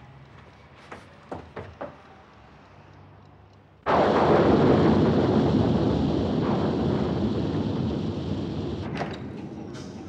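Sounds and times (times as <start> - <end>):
thunder clap and rumble: 3.9 - 8.9
rain: 3.9 - 9.0.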